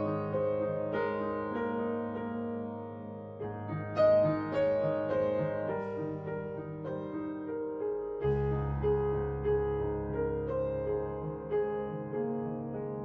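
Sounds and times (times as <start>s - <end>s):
gentle piano melody: 0.0s - 13.0s
deep bass note: 8.3s - 11.2s.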